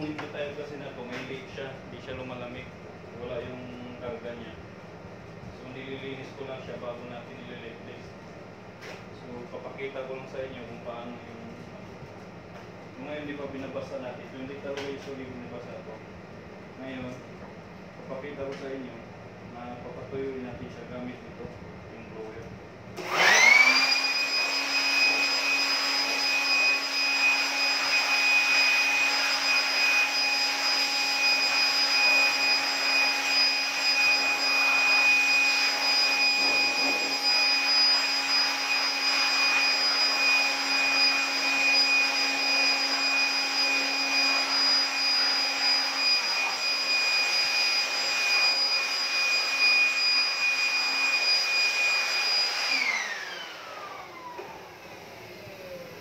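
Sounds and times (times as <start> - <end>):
electric air blower whining: 23.0 - 56.0.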